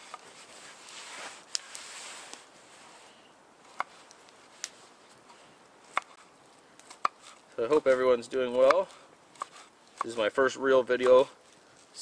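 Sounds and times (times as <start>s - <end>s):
soft rustling: 0.0s - 8.2s.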